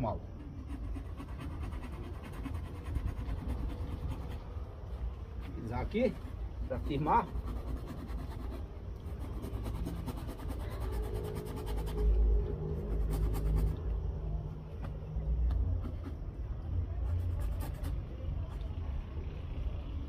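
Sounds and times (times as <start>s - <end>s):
low rumble: 9.1s - 20.0s.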